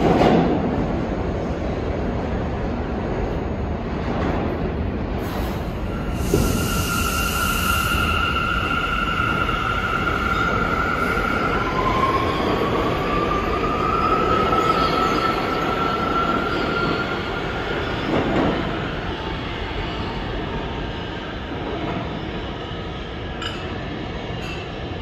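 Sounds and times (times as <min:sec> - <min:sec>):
subway train rumble: 0:00.0 - 0:25.0.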